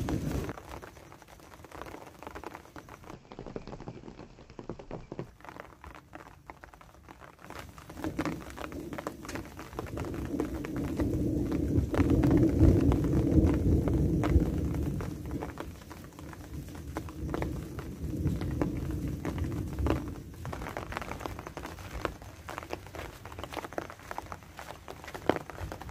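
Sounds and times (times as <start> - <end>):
rolling thunder: 0.0 - 0.6, 8.1 - 21.8
light rain patter: 0.0 - 25.9.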